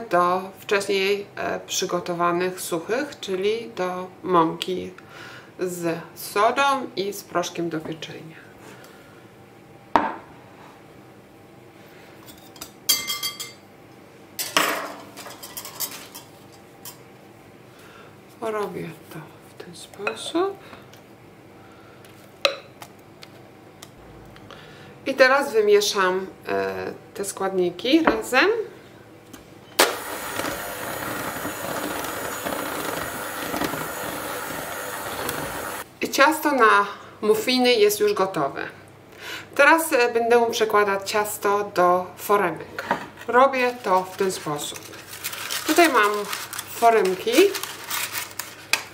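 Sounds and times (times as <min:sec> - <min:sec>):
electric hand mixer beating batter: 0:29.8 - 0:35.8.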